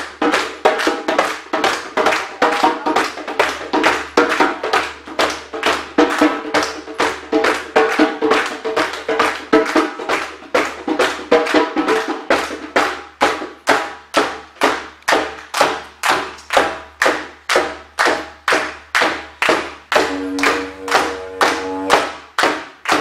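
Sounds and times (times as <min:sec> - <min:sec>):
djembe strikes: 0:00.0 - 0:23.0
held pitched tone: 0:20.0 - 0:22.0.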